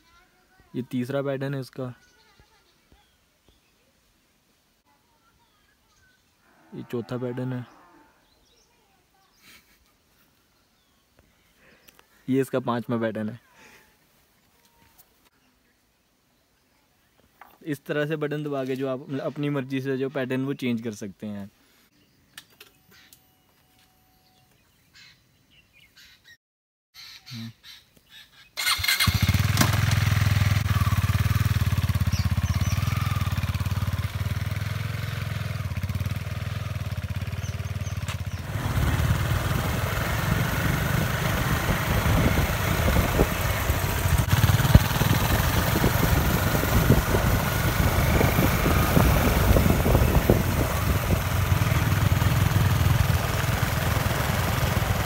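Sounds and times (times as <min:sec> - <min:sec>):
motorcycle engine running: 0:28.6 - 0:55.0.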